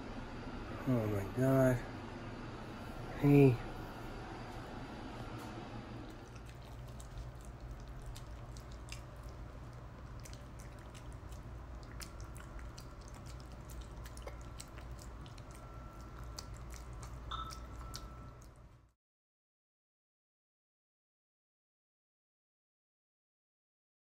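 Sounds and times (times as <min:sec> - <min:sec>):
steady low hum: 0:00.0 - 0:19.0
dog chewing and licking food: 0:06.1 - 0:18.9.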